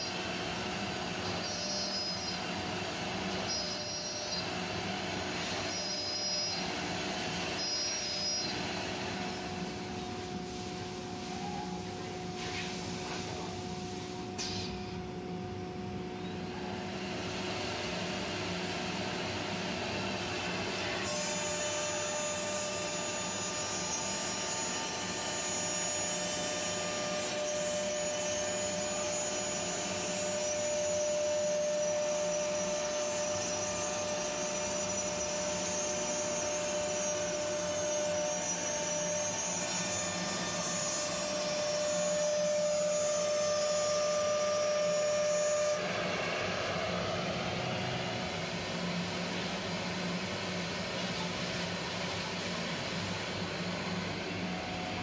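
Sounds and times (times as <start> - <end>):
router spindles whining: 0.0 - 9.7, 20.3 - 50.6
higher whine: 41.0 - 49.7.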